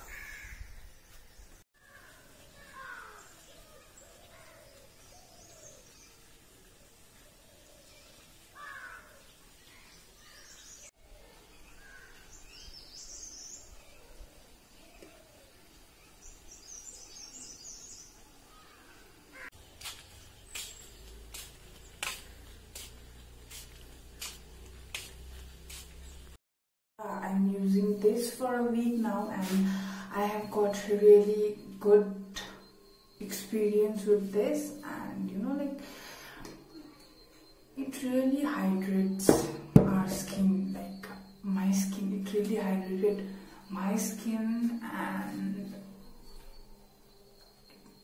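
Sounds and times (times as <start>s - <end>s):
crow cawing: 0.0s - 0.7s, 1.8s - 3.2s, 8.6s - 9.2s
small birds chirping: 0.0s - 26.4s, 27.7s - 48.0s
sandal footsteps on concrete: 19.5s - 26.4s.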